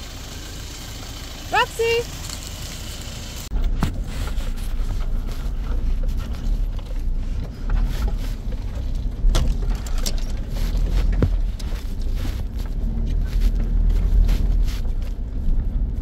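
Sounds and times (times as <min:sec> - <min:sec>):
vehicle cab rumble: 0:00.0 - 0:16.0
knocks and rattles: 0:03.6 - 0:16.0.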